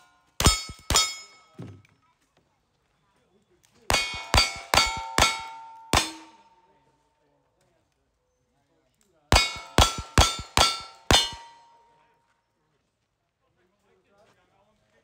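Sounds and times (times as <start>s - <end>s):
metallic ring of steel targets: 0.0s - 1.7s, 3.9s - 6.6s, 9.3s - 12.0s
gunshots: 3.9s - 6.4s.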